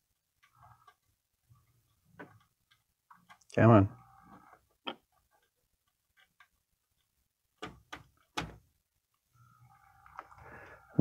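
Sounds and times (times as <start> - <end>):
faint clicks and taps: 0.1 - 3.6, 4.3 - 9.3.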